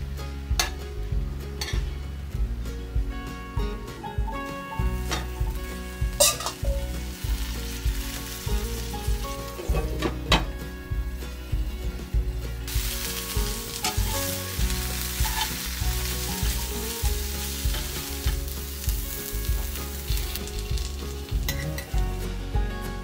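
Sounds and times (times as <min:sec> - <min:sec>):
metal tongs in pan: 0:01.6 - 0:01.8, 0:05.0 - 0:10.5, 0:12.7 - 0:22.0
vegetables sizzling in pan: 0:04.6 - 0:11.1, 0:12.5 - 0:22.3.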